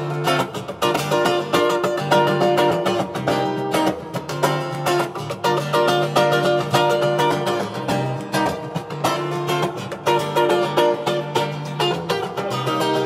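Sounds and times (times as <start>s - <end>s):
acoustic guitar strumming chords: 0.0s - 13.0s.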